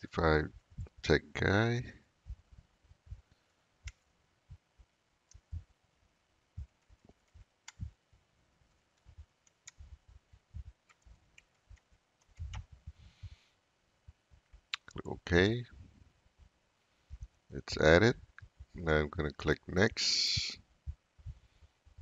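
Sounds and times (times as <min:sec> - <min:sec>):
keyboard typing: 0:06.9 - 0:07.9, 0:10.8 - 0:12.7.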